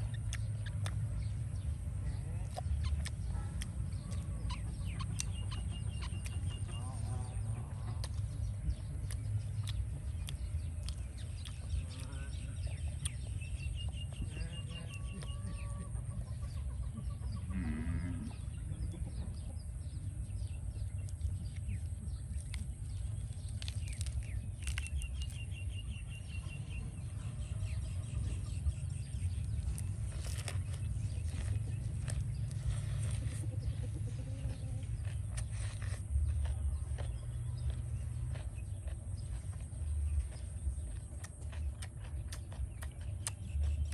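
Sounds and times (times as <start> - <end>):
chickens clucking: 0.0 - 43.9
small birds chirping: 0.0 - 43.9
steady low rumble: 0.0 - 43.9
lettuce leaves crisp clicks: 21.0 - 26.2.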